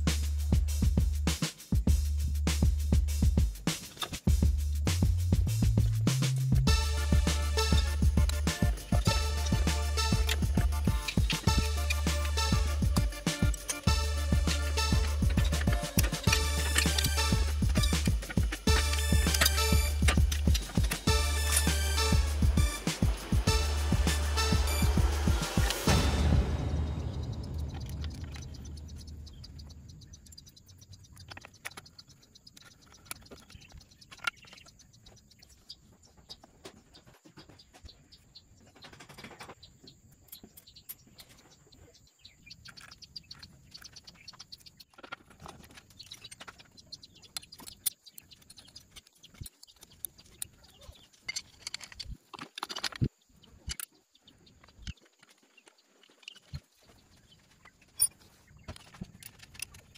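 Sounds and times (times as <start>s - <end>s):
faint bird chirps: 26.4s - 52.1s
metallic clicks of hand tools: 51.2s - 53.9s.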